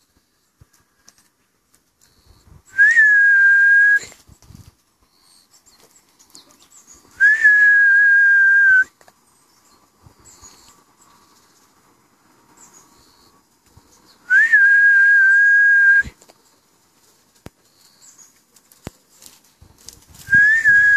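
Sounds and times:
long whistle blasts: 2.7 - 4.1, 7.2 - 8.9, 14.3 - 16.2, 20.3 - 20.9.

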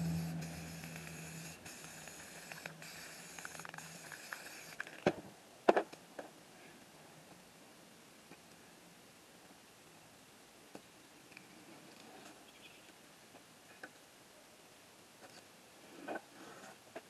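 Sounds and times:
spray paint can hissing: 0.0 - 4.9.

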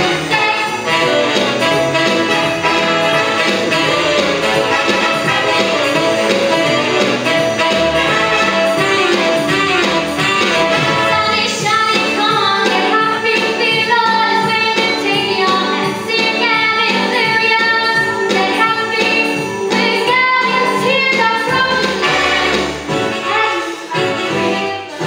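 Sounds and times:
accompaniment with steady beat: 0.0 - 11.4
woman singing jazz: 10.9 - 22.6, 23.9 - 25.0.

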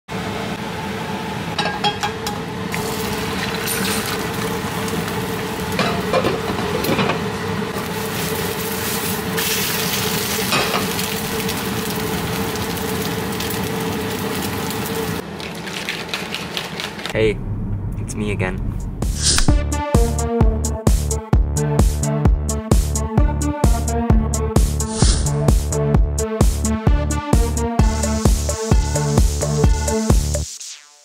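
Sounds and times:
eggs sizzling in a pan: 2.7 - 5.8, 7.8 - 17.1.

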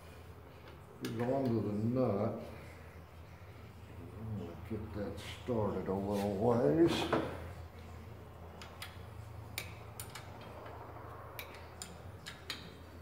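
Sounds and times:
steady low hum: 0.0 - 13.0
wrench clicking on nut: 9.6 - 10.8, 11.4 - 12.7.

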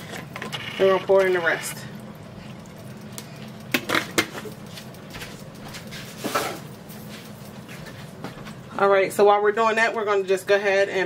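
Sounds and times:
steady low hum: 0.0 - 11.0
knocks and splats: 3.1 - 5.9.

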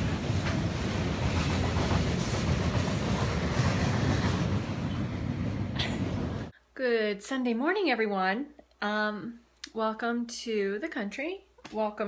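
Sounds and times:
freight train crossing steel bridge: 0.0 - 6.5.

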